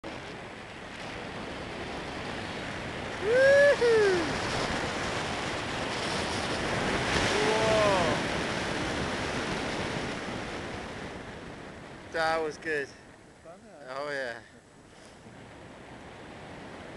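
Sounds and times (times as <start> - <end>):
wind rushing over microphone: 0.0 - 13.3, 13.9 - 16.9
person whooping: 3.2 - 4.4, 7.3 - 8.2.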